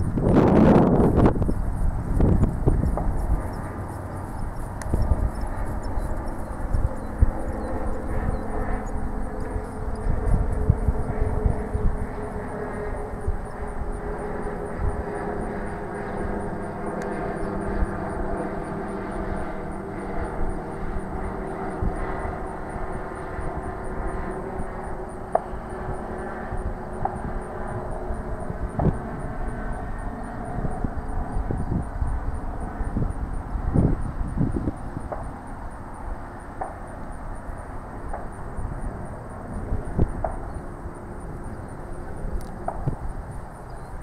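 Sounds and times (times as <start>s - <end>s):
engine drone: 0.0s - 44.0s
faint clicks: 42.4s - 43.0s.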